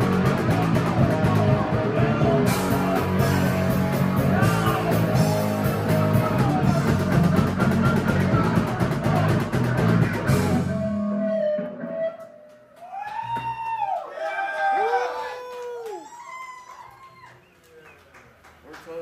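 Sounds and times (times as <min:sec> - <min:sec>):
drum kit: 0:00.0 - 0:12.4
electric guitar: 0:00.0 - 0:12.7.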